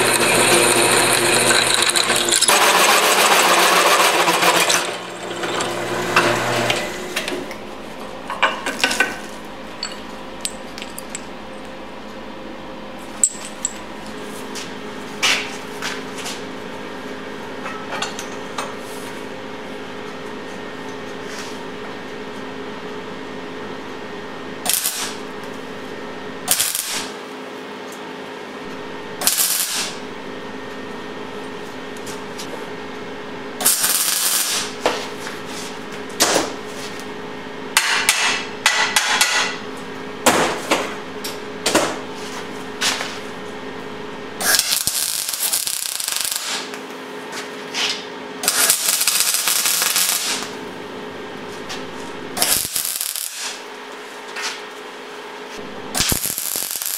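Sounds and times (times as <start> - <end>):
welder crackling and sputtering: 0.0 - 7.4, 24.6 - 25.3, 26.4 - 27.2, 29.2 - 30.0, 33.6 - 34.8, 44.4 - 46.8, 48.4 - 50.6, 51.8 - 53.8, 55.6 - 56.9
welder electrical hum: 0.0 - 56.9.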